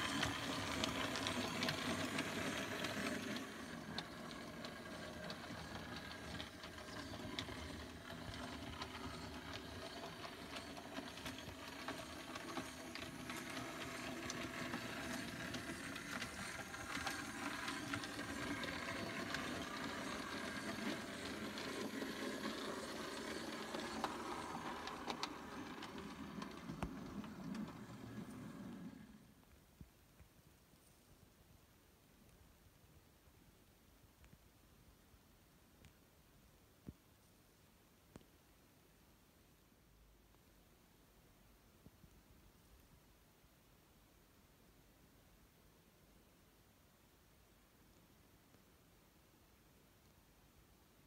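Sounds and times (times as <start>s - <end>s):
model train running on track: 0.0s - 29.3s
wheels clicking on rails: 0.0s - 29.4s.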